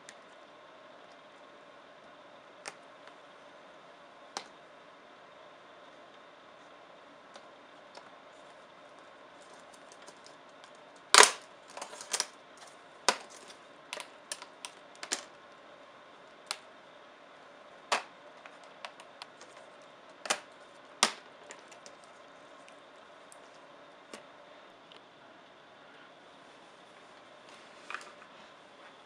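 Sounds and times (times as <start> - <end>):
plastic clips snapping: 11.2 - 12.3, 17.9 - 19.5.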